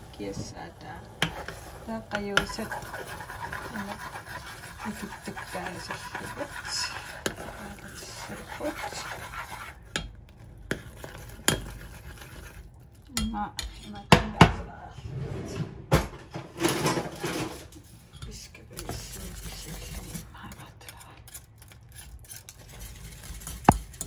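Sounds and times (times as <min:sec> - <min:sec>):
spoon scraping saucepan: 0:00.0 - 0:14.1.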